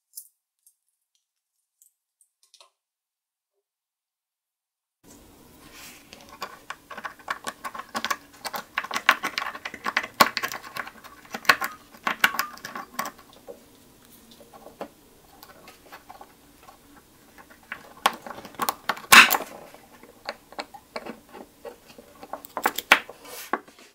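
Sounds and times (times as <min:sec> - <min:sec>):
lock pick clicking and scraping: 0:06.2 - 0:13.3.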